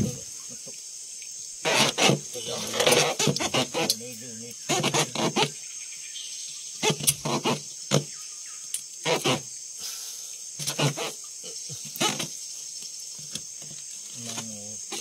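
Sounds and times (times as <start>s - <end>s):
insects shrilling: 0.0s - 15.0s
short rasping bursts: 1.6s - 4.0s.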